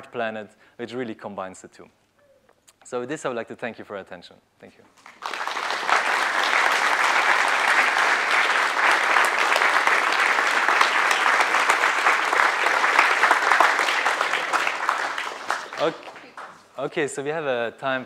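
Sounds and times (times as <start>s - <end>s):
audience applauding: 5.0s - 16.7s.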